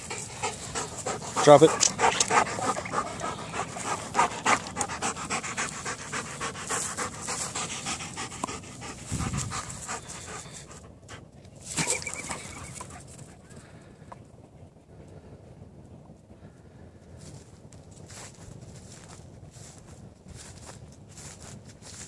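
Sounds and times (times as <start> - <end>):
dog panting hard: 0.0 - 13.4.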